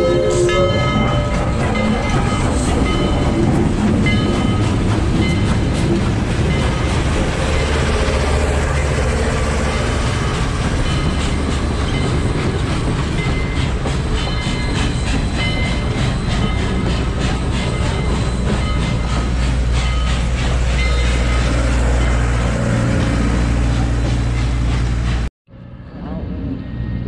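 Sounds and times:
heavy train rumble: 0.0 - 27.0
train wheels clattering over rail joints: 0.8 - 25.3.

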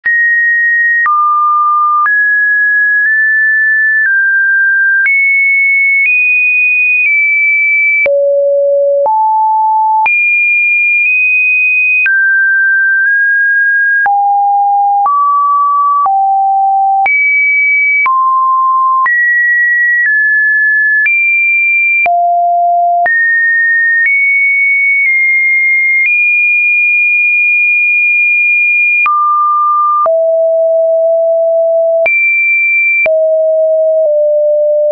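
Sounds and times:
electronic test tone: 28.9 - 34.9.

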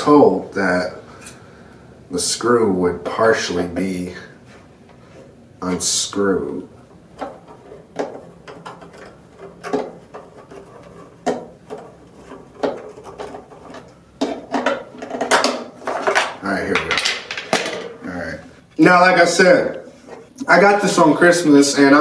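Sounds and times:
plastic scraping and rattling: 7.1 - 18.2.

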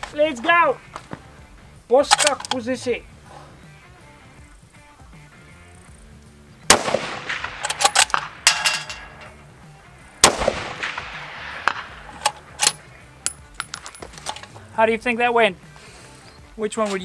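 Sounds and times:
metallic rifle bolt clicks: 2.1 - 2.6, 7.3 - 9.4, 11.7 - 14.6
rifle shots echoing: 6.7 - 9.3, 10.2 - 12.9.

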